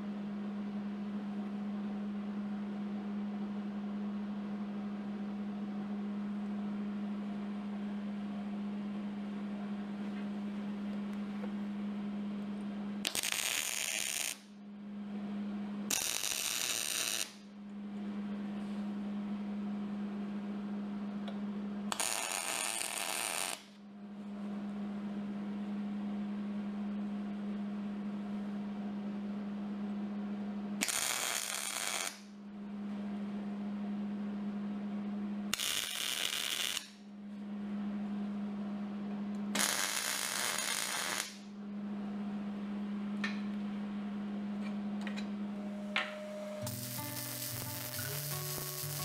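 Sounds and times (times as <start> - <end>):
welding arc crackle: 13.0 - 14.4, 15.9 - 17.4, 21.9 - 23.7, 30.8 - 32.2, 35.5 - 36.9, 39.6 - 41.4, 46.6 - 49.0
welder hum: 13.0 - 14.5, 15.9 - 17.4, 21.9 - 23.8, 30.8 - 32.2, 35.5 - 37.0, 39.5 - 41.5, 45.4 - 49.0.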